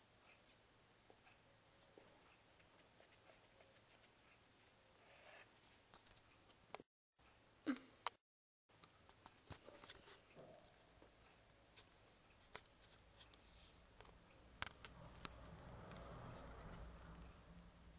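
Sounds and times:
small clicks and light scratching: 11.1 - 16.9.

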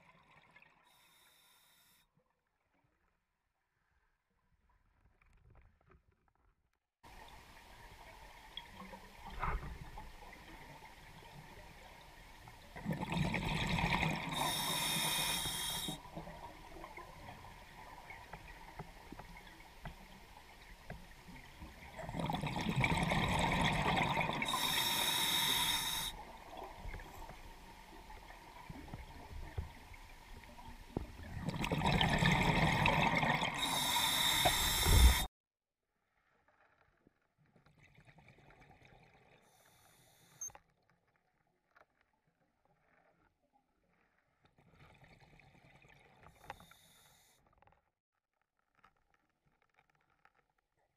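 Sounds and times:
diver breathing through regulator: 14.3 - 16.0, 24.4 - 26.2, 33.5 - 35.3.

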